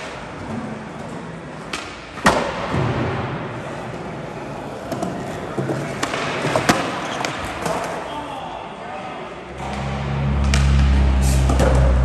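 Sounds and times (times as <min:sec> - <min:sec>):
skateboard wheels rolling on concrete: 0:00.0 - 0:08.1.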